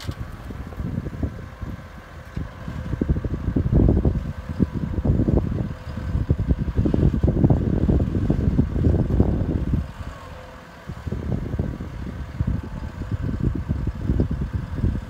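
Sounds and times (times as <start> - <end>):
distant tractor engines running: 0.0 - 15.0
wind buffeting microphone: 0.0 - 15.0.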